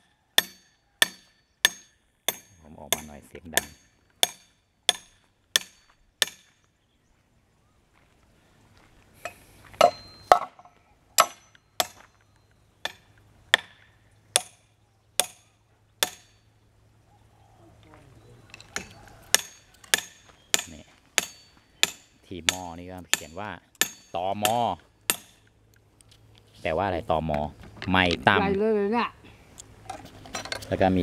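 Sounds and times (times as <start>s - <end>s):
hammer striking metal fitting: 19.4s - 25.4s.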